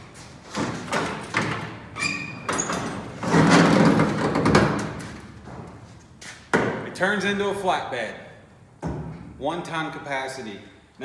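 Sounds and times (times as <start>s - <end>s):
metal truck panels clunking: 0.5s - 5.8s
short squeak: 2.0s - 2.7s.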